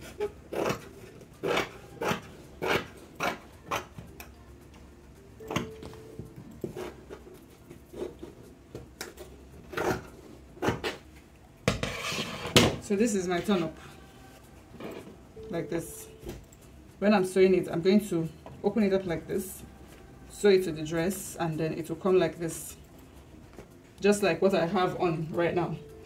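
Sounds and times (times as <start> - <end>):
scissors snipping fabric: 0.5 - 3.9.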